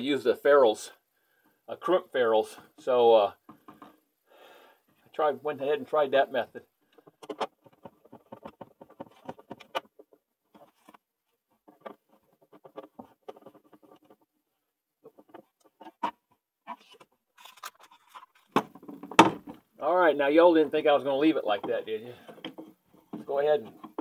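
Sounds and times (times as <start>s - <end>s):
plastic enclosure clicks and scrapes: 6.9s - 14.3s, 15.0s - 19.7s.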